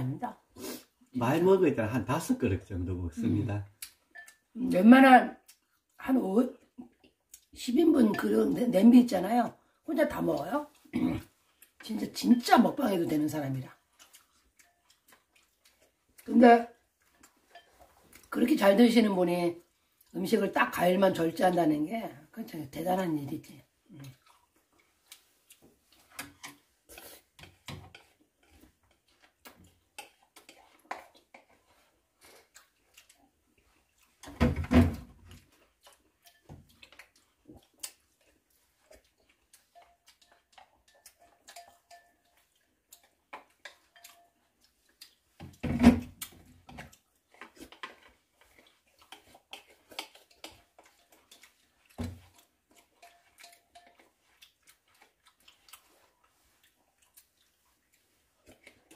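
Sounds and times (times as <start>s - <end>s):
loud full eating sounds: 3.2s - 22.3s, 23.4s - 34.4s, 35.1s - 58.9s
spoons clicking against wooden bowls: 3.8s - 4.4s, 35.9s - 37.1s, 39.7s - 44.4s, 49.1s - 51.5s, 52.8s - 54.1s.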